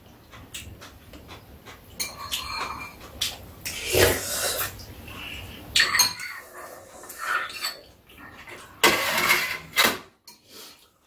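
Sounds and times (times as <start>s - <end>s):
eating sounds: 0.1s - 8.8s
utensils clinking on ceramic bowls: 2.0s - 3.8s, 5.8s - 6.5s, 7.1s - 8.0s.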